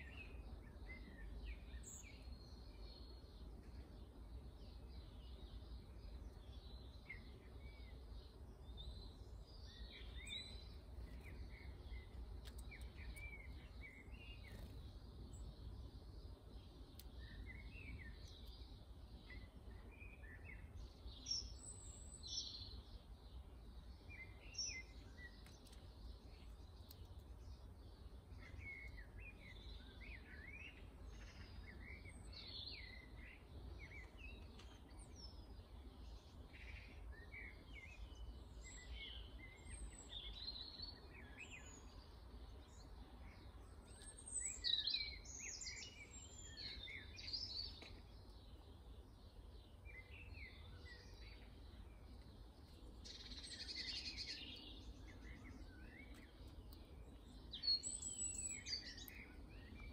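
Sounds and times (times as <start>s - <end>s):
songbirds chirping and twittering: 0.0s - 59.9s.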